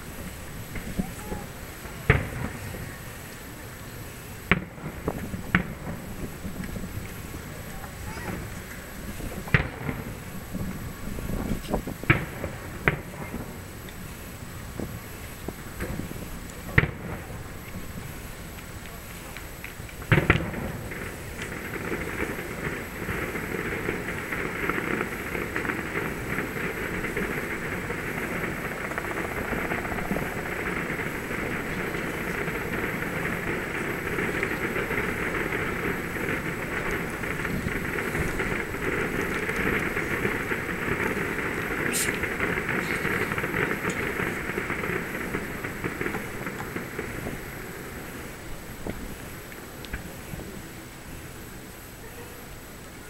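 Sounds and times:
fireworks bangs: 0.0s - 51.4s
low rumble: 26.1s - 49.3s.

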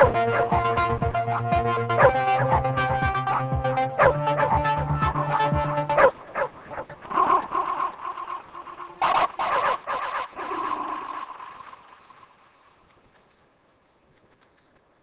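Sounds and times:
dog yipping and whining: 2.0s - 2.7s, 3.3s - 4.6s, 9.0s - 10.5s.

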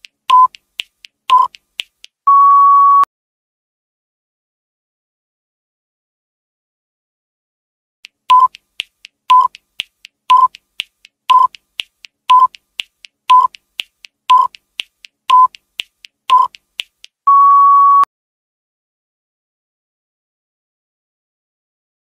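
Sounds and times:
short timer beeps: 0.3s - 0.6s, 1.3s - 1.6s, 8.3s - 8.6s, 9.3s - 9.6s, 10.3s - 10.6s, 11.3s - 11.6s, 12.3s - 12.6s, 13.3s - 13.6s, 14.3s - 14.6s, 15.3s - 15.6s, 16.3s - 16.6s
longer higher beep: 2.3s - 3.1s, 17.3s - 18.1s
faint ticks: 8.0s - 17.2s.

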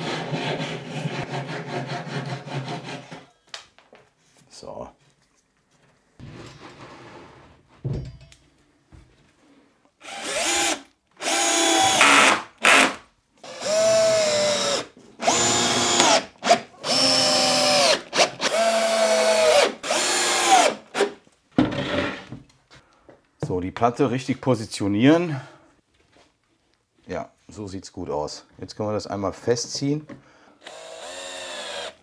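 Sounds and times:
cordless drill driving screws: 10.0s - 21.1s, 30.6s - 32.0s.

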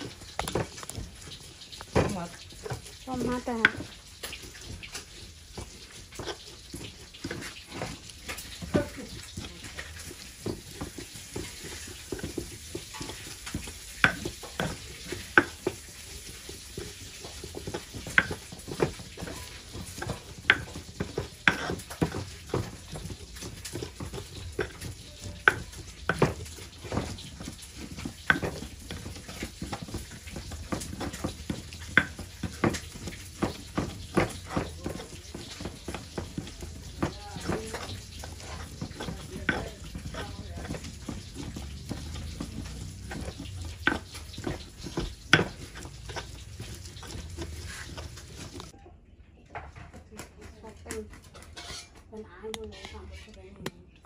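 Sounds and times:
pestle grinding wet paste: 0.0s - 48.8s, 50.4s - 52.0s
stone knocking on stone: 1.8s - 4.0s, 10.4s - 15.9s, 16.8s - 48.7s.

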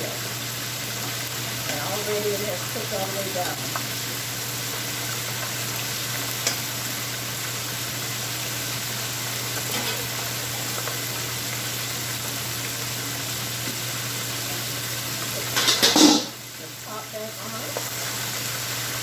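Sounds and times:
oil sizzling in deep fryer: 0.0s - 19.0s.

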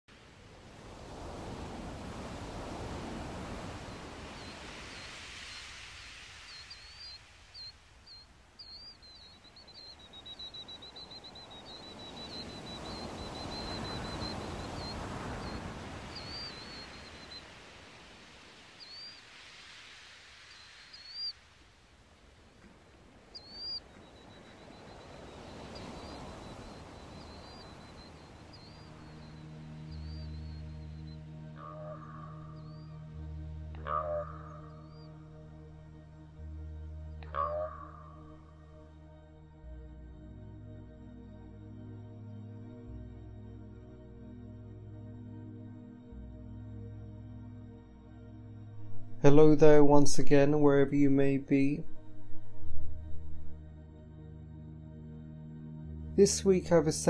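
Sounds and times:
sea waves washing ashore: 0.1s - 38.0s, 48.7s - 53.8s
small birds chirping: 1.4s - 21.5s, 22.2s - 33.0s, 33.8s - 35.2s.

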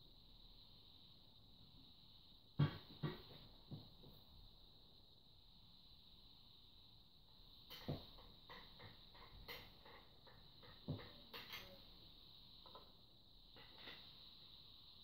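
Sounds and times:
wooden cane sections knocking: 7.7s - 11.8s.

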